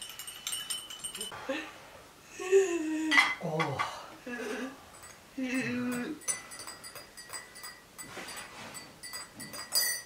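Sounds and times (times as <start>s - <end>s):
glasses and dishes clinking: 0.0s - 1.4s, 3.1s - 3.9s, 4.9s - 10.0s.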